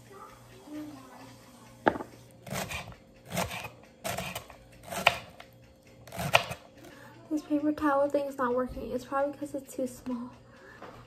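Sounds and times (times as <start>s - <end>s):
knife knocking on cutting board: 1.8s - 2.1s
knife crunching through onion: 2.4s - 6.6s.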